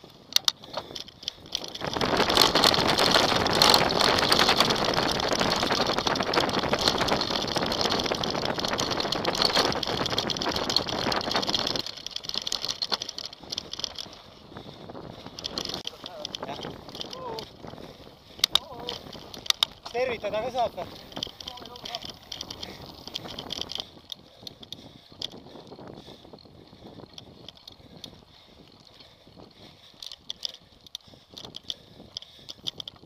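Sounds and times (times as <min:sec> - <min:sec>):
wind on microphone: 0:00.0 - 0:33.0
bike knocks and clatters: 0:00.4 - 0:14.2.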